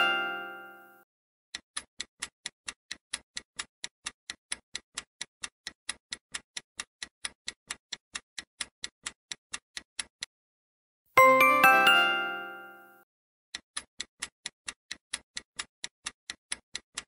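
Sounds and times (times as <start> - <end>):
countdown timer ticking: 11.2 - 12.9.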